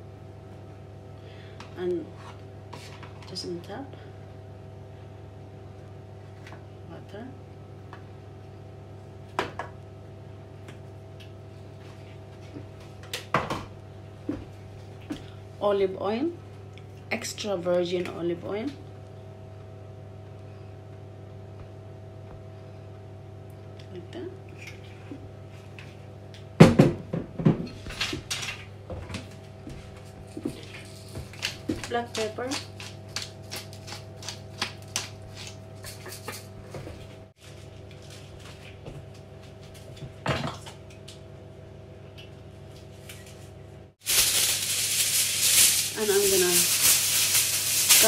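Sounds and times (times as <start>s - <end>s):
steady hum: 40.7s - 48.0s.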